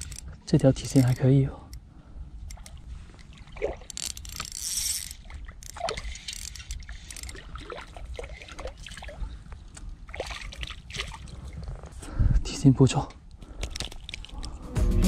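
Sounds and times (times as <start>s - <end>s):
fishing reel handling rustles: 0.0s - 1.3s, 2.4s - 8.6s, 13.4s - 14.6s.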